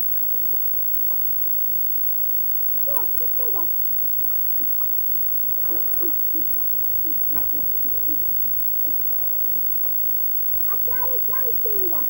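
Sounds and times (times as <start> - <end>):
steady low hum: 0.7 - 12.0
distant people talking: 2.9 - 9.4, 10.5 - 12.0.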